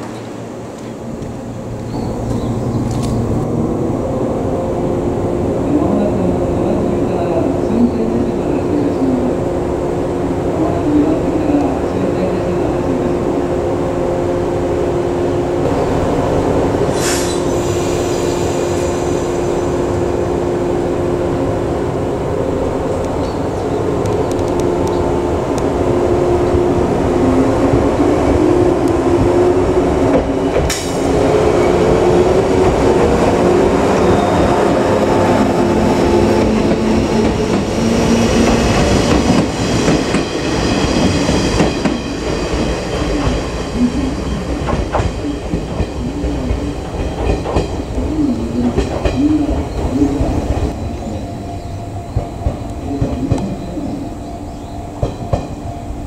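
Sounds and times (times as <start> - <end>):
electric train humming: 0.0 - 56.0
air hiss: 16.9 - 19.7.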